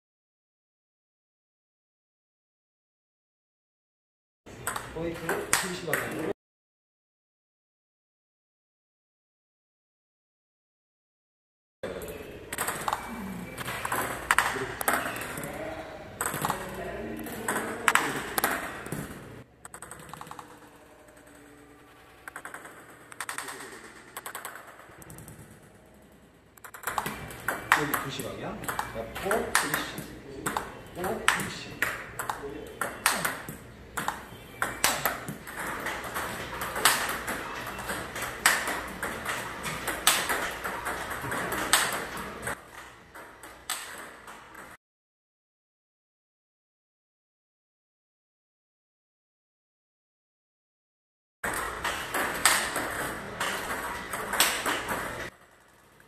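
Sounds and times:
table tennis ball clicks: 0:04.6 - 0:06.3, 0:12.0 - 0:15.6, 0:16.2 - 0:21.6, 0:22.2 - 0:25.7, 0:26.6 - 0:44.8, 0:51.5 - 0:55.7.

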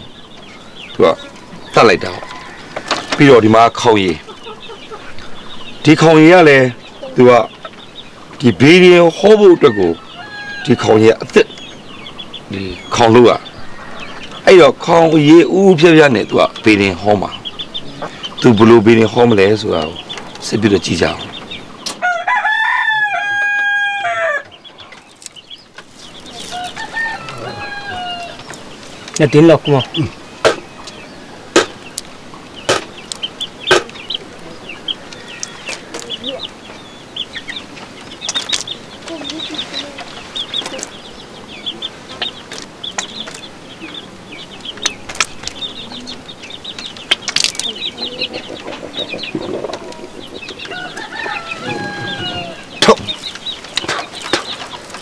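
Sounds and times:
chickens cheeping and clucking: 0:00.0 - 0:55.0
rooster crowing: 0:01.5 - 0:03.5, 0:09.4 - 0:11.1, 0:13.5 - 0:14.3, 0:22.0 - 0:24.5, 0:26.3 - 0:28.5, 0:50.6 - 0:52.8
sharp clicks: 0:32.7 - 0:34.0.

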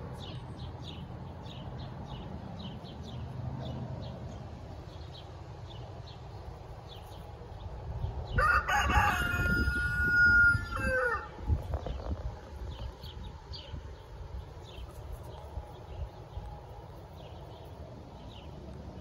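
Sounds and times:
small birds chirping: 0:00.0 - 0:08.5, 0:10.6 - 0:19.0
rooster crowing: 0:08.4 - 0:11.4.

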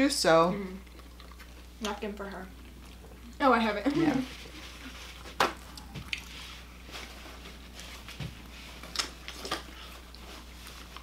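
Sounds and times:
low steady hum: 0:00.0 - 0:11.0
person chewing crunchy food: 0:00.8 - 0:01.9, 0:04.4 - 0:11.0.

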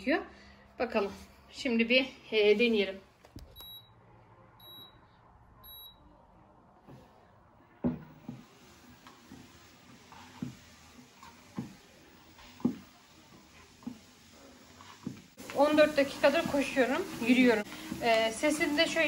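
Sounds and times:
short high beeps: 0:03.5 - 0:04.0, 0:04.6 - 0:05.0, 0:05.6 - 0:06.0
treadmill belt motor hiss: 0:08.2 - 0:19.0.

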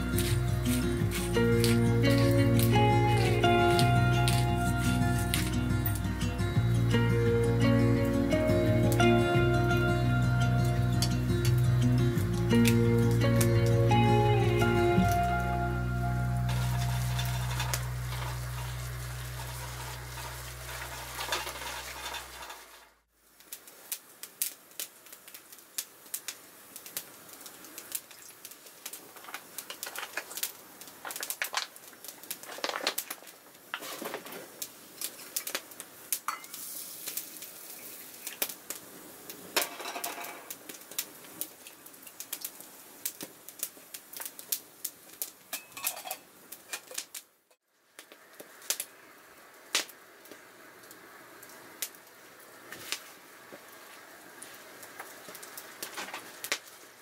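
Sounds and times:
background music: 0:00.0 - 0:20.7
metal pots and cups clinking: 0:16.5 - 0:22.8, 0:36.3 - 0:36.6, 0:45.6 - 0:46.9.

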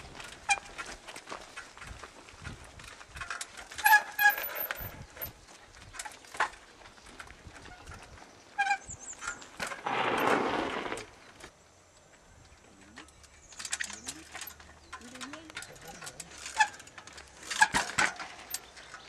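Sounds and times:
short high squeaks: 0:03.7 - 0:05.4, 0:07.6 - 0:11.3, 0:16.0 - 0:18.7.

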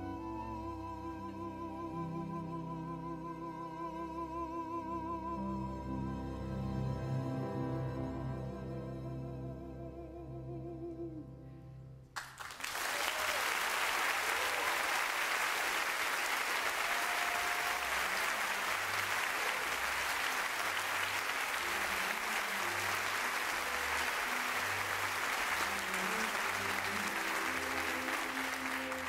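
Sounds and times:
audience applauding: 0:12.2 - 0:29.0.

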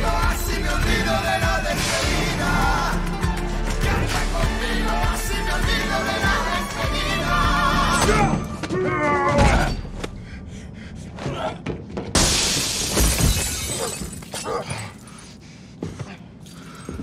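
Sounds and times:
song with singing: 0:00.0 - 0:08.6
glass breaking: 0:12.2 - 0:14.7.

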